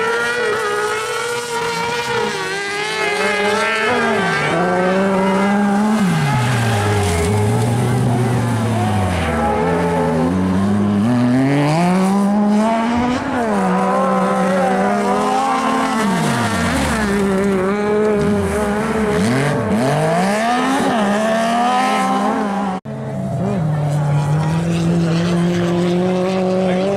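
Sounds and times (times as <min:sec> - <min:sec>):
buggy engines revving: 0:00.0 - 0:26.9.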